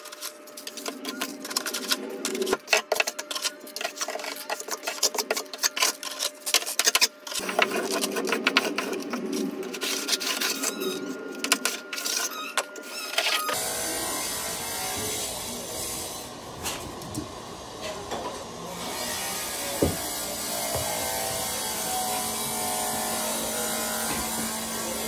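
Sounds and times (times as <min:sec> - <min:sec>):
float rubbing mortar: 0:00.0 - 0:13.3.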